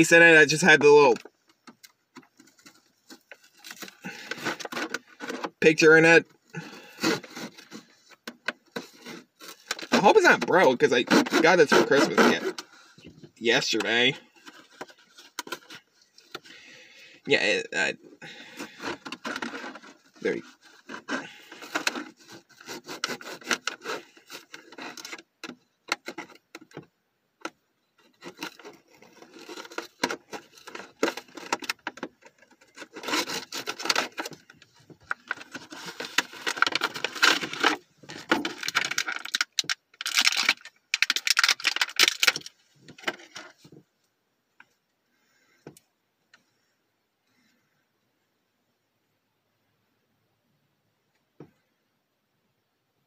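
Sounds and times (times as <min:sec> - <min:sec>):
packaging crinkling: 0:28.2 - 0:43.5.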